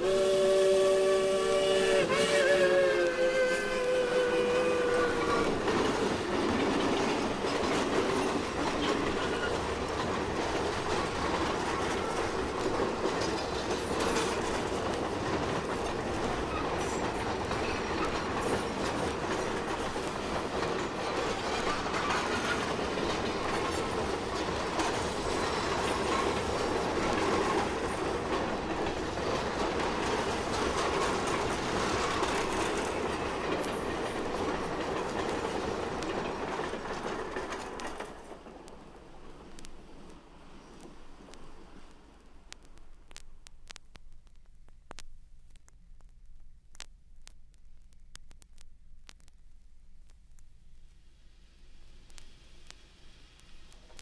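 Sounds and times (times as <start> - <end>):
steam train rolling past: 0.0 - 42.2
train cars clicking over rail joints: 4.8 - 42.1.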